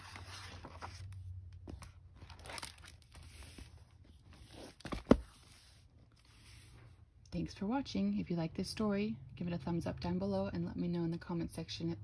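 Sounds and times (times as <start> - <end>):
book pages and cover rustling: 0.0 - 7.0
book cover knocks: 4.9 - 5.3.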